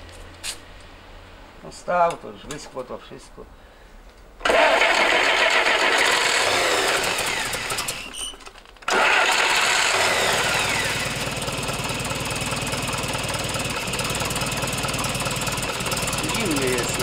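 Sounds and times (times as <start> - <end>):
petrol engine idling: 8.9 - 17.0.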